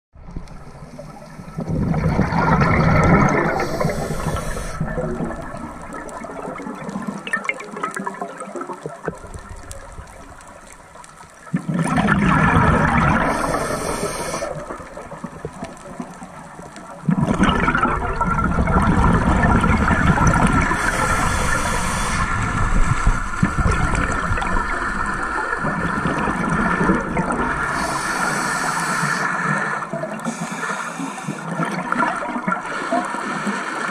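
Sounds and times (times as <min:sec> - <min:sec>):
underwater regulator bubbles: 0:00.2 - 0:33.9.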